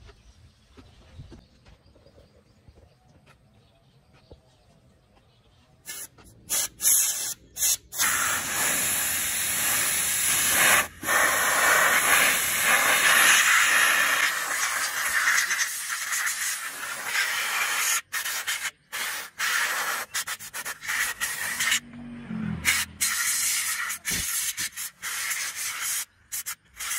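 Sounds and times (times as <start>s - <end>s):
compressed air hissing: 5.8s - 21.8s, 22.6s - 26.9s.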